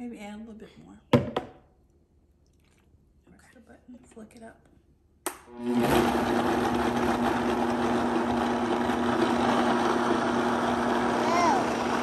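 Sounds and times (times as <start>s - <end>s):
blender motor hum and whine: 5.4s - 12.0s
fruit churning in blender: 5.5s - 12.0s.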